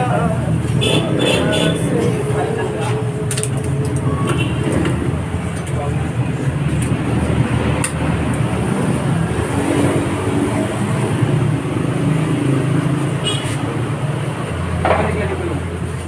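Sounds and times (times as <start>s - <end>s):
low engine rumble: 0.0s - 11.9s.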